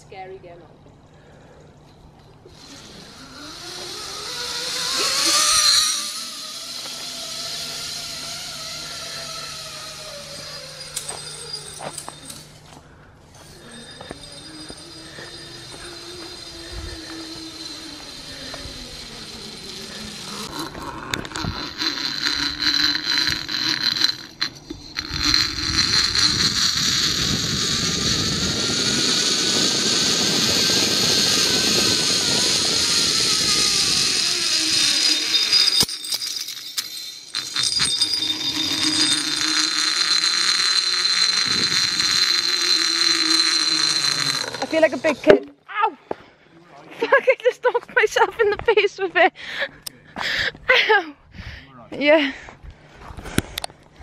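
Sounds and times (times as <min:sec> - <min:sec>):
zip-line trolley whirring on cable: 0:02.2 - 0:45.5
wind on microphone: 0:25.0 - 0:34.6.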